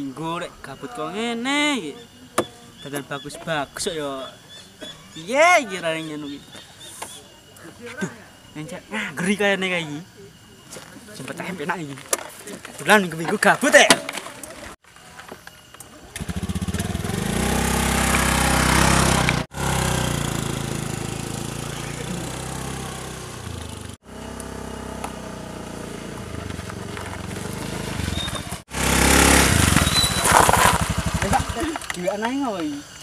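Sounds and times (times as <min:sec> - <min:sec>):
scooter engine pulling away: 0:16.1 - 0:31.9.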